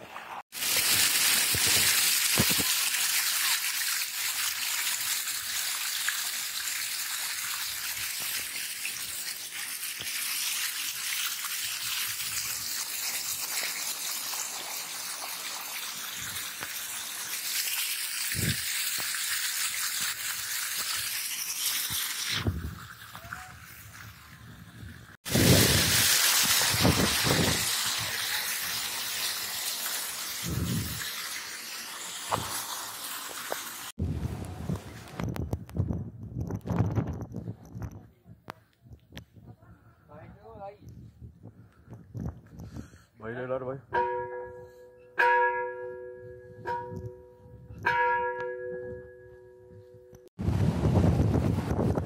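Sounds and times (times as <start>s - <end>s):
heavy rain pouring: 25.3s - 33.9s.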